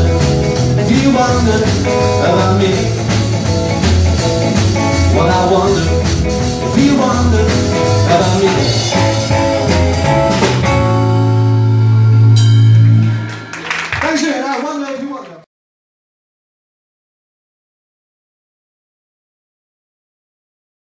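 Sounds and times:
rockabilly band playing: 0.0 - 14.8.

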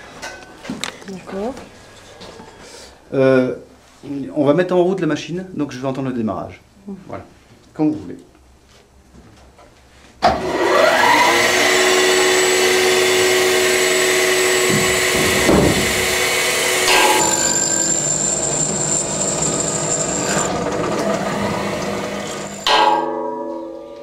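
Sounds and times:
milling machine spindle whine: 10.6 - 22.7
high thin whine: 13.8 - 20.6.

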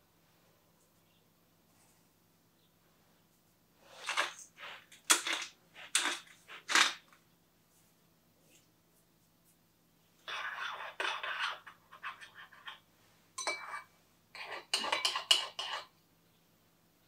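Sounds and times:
rustling and scraping: 3.2 - 9.6, 10.2 - 13.8.

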